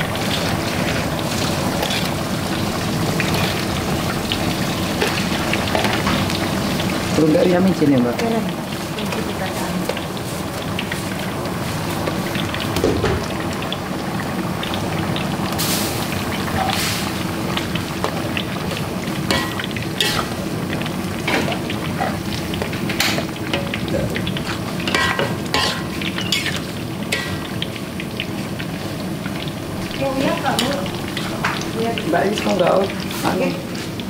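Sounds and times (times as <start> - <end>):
metal utensil scraping a pan: 0.3 - 2.2, 19.3 - 20.4, 24.4 - 27.6
food hissing in a pan: 14.8 - 34.0.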